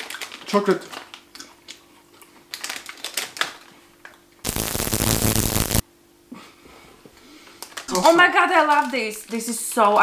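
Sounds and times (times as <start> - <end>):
plastic wrapper crinkling: 2.5 - 3.6, 8.6 - 9.4
loud hissing noise: 4.5 - 5.8.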